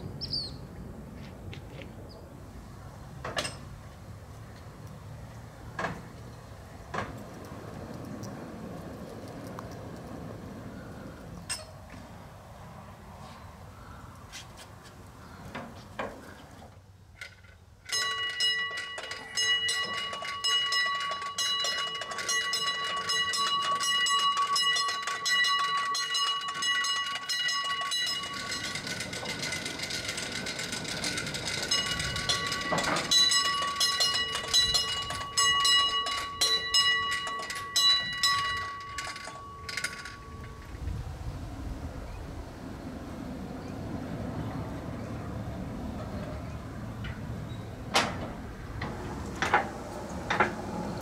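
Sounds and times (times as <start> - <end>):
clicks and knocks: 17.2 - 40.8, 47.9 - 50.7.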